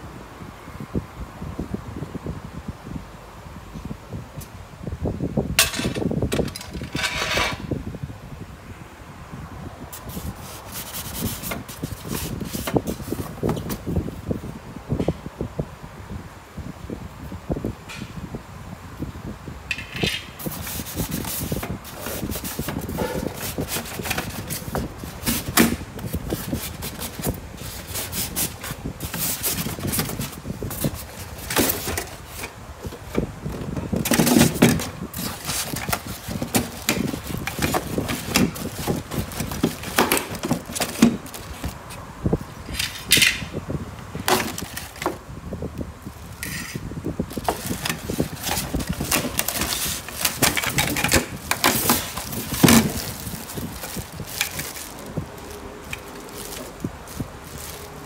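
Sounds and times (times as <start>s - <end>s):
foam and cardboard rubbing: 10.0s - 14.0s, 20.4s - 42.0s, 47.2s - 58.0s
plastic wrapping crinkling: 20.4s - 42.0s, 47.2s - 58.0s.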